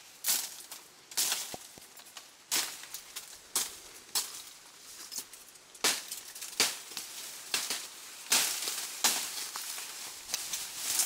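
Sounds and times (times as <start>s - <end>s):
footsteps on dry leaves: 0.0s - 11.0s.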